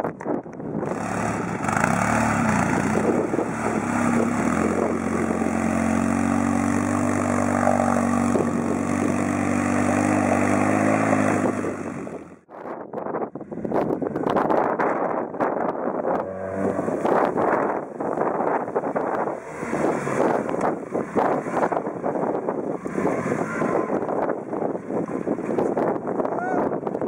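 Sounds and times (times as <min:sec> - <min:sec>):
engine running steadily: 0:00.5 - 0:12.5, 0:13.4 - 0:27.0
water splashing around wheels: 0:00.9 - 0:12.2, 0:18.7 - 0:26.0.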